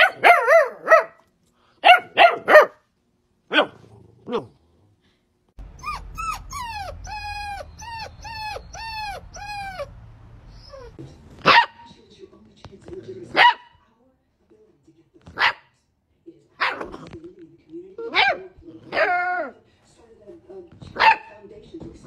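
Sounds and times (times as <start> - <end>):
puppy yelping: 0.0 - 1.2, 5.6 - 11.9, 18.0 - 19.5
puppy high-pitched barks: 0.0 - 2.9, 3.5 - 4.5, 5.8 - 9.9, 10.7 - 11.9, 13.3 - 13.8, 15.3 - 15.7, 16.6 - 17.0, 18.0 - 19.5, 21.0 - 21.4.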